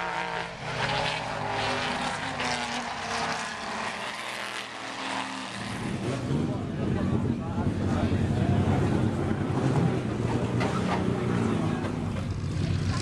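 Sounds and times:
race car engines passing: 0.0s - 13.0s.

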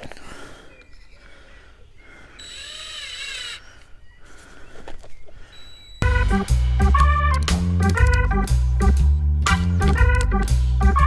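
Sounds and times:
cordless drill motor whining: 2.4s - 3.7s, 5.5s - 6.0s.

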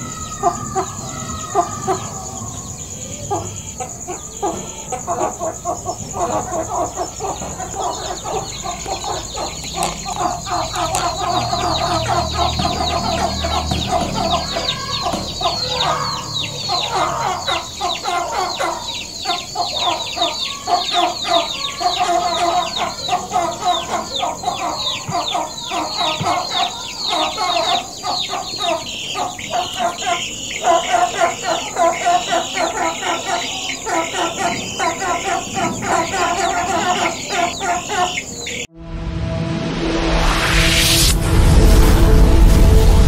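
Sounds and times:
hen clucking: 0.0s - 38.7s
high falling chirps: 0.0s - 38.7s.

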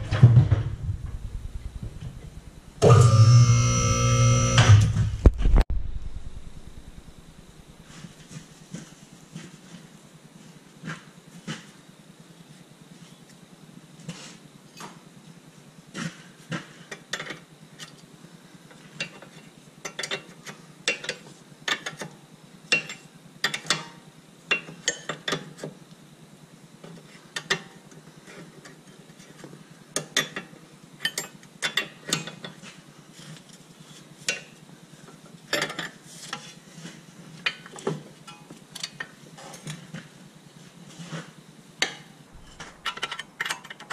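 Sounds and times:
steady low hum: 0.0s - 10.4s, 39.1s - 43.8s.

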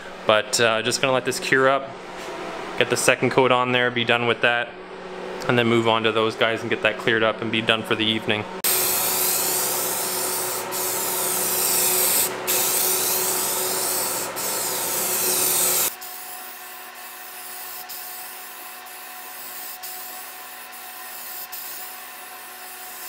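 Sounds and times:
aerosol spray can hissing: 8.7s - 16.2s, 17.0s - 23.0s.

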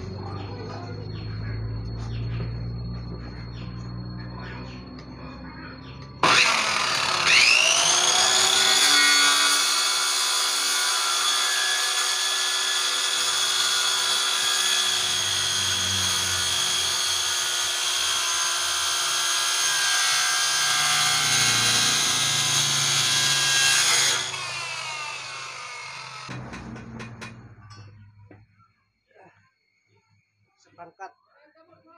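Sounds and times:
circular saw cutting wood: 6.2s - 27.8s.

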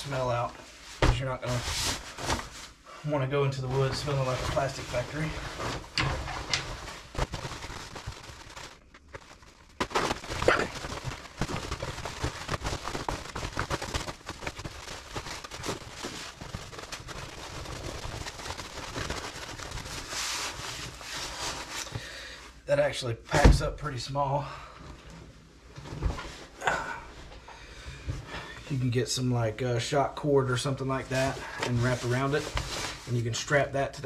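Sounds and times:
waterproof fabric rustling: 0.0s - 2.8s, 3.5s - 21.9s, 31.0s - 33.6s.

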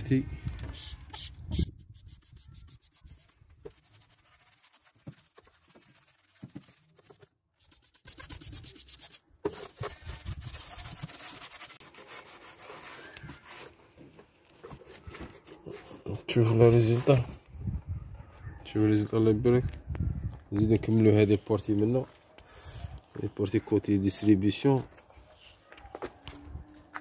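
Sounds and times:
paintbrush scrubbing metal: 1.9s - 13.1s
cloth wiping: 2.1s - 9.2s.

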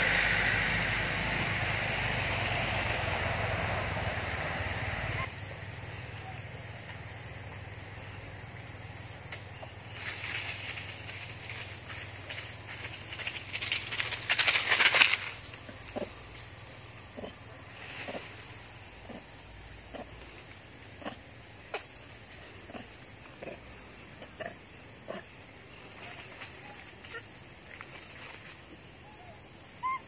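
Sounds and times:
insect chorus drone: 0.0s - 30.0s
rustling and crackling: 10.0s - 16.5s.

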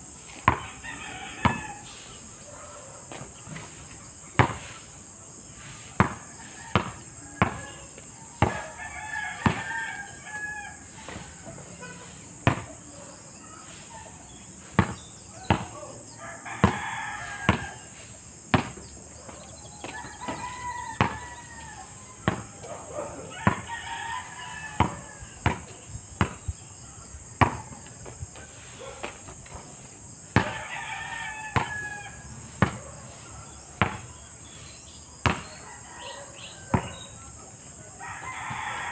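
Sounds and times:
steady high-pitched hiss: 0.0s - 38.9s
roosters crowing: 0.1s - 38.9s
basketball bouncing on asphalt: 0.3s - 1.9s, 4.4s - 4.8s, 6.0s - 8.8s, 9.4s - 10.0s, 12.4s - 12.9s, 14.6s - 15.8s, 16.6s - 17.9s, 18.5s - 22.7s, 23.3s - 28.4s, 29.0s - 32.9s, 33.8s - 34.2s, 35.2s - 35.6s, 36.7s - 37.1s.

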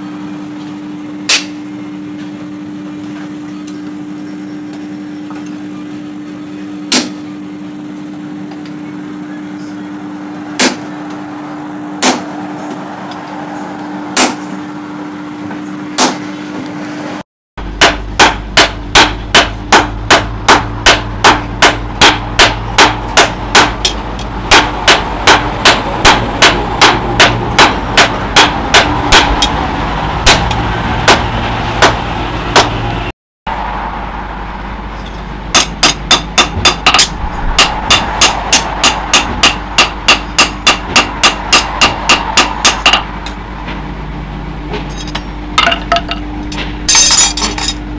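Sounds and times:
hammer striking hot metal: 1.3s - 1.7s, 6.9s - 7.3s, 10.6s - 10.9s, 12.0s - 12.4s, 14.1s - 14.6s, 17.8s - 32.8s, 35.0s - 43.4s, 44.8s - 47.8s
low hum: 17.1s - 47.9s.

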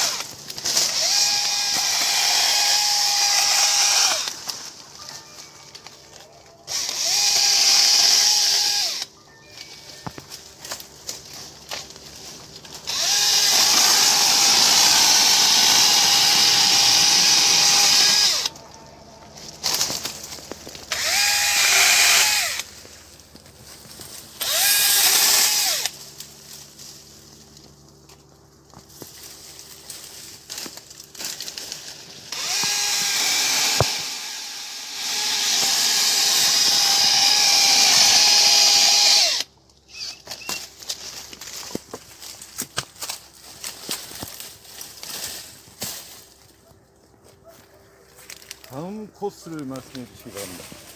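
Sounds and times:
electric saw cutting branches: 0.0s - 4.9s, 6.6s - 9.1s, 12.6s - 18.7s, 19.5s - 22.9s, 24.2s - 26.6s, 30.6s - 41.4s.

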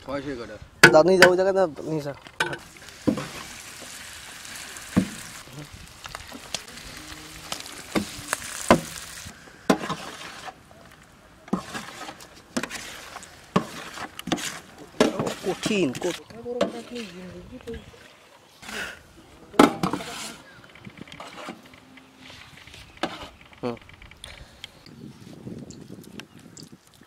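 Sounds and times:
rice sizzling in hot pan: 2.6s - 10.5s
metal spatula scraping pan: 9.7s - 10.6s, 11.5s - 17.3s, 19.7s - 21.7s.

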